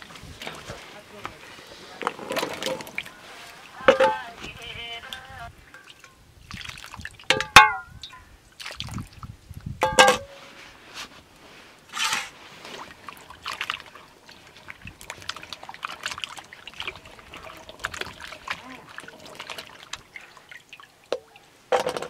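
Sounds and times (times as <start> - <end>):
water splash: 1.4 - 10.4, 12.0 - 22.0
metal plate clanking on basin: 3.8 - 4.3, 7.3 - 8.2, 9.8 - 10.4, 21.7 - 22.0
hands rubbing potatoes in water: 10.4 - 21.5
water pouring off potatoes: 12.5 - 21.0.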